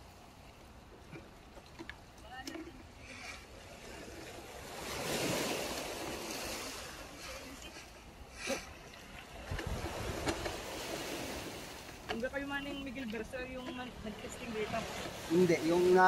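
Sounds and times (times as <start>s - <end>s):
surf washing on shore: 2.3s - 16.0s
wind on microphone: 9.3s - 11.7s.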